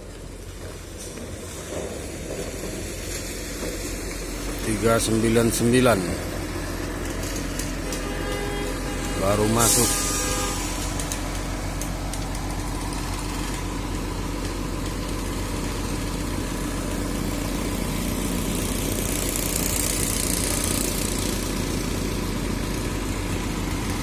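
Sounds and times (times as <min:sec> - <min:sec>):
bus diesel engine idling: 0:00.0 - 0:24.0
hissing noise: 0:06.2 - 0:14.0.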